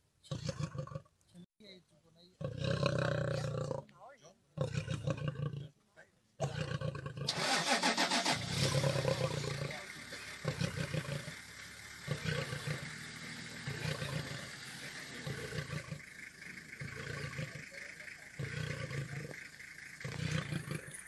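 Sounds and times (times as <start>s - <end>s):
lion roaring: 2.4s - 3.9s, 4.6s - 5.7s, 6.4s - 7.3s, 8.5s - 21.0s.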